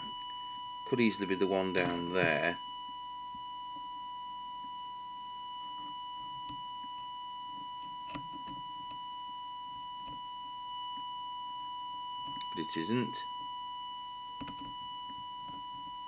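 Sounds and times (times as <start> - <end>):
steady test tone: 0.0 - 16.0.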